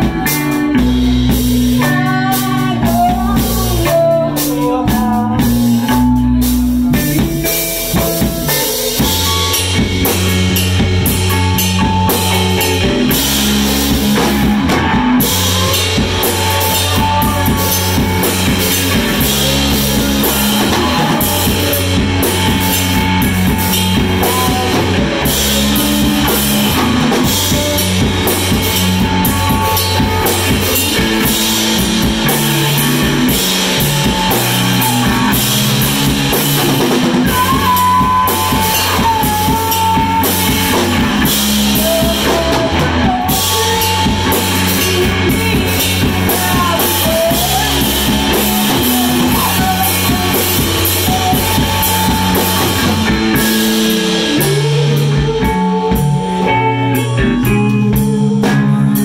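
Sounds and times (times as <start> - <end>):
drum and cymbal hits: 0.0 - 59.0
electric guitars playing riff: 0.0 - 59.0.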